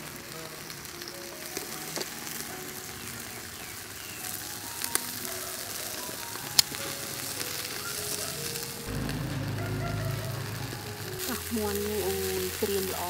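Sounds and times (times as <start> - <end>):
sharp pops and crackles: 0.0 - 9.8
chicken sizzling on a grill: 0.0 - 13.0.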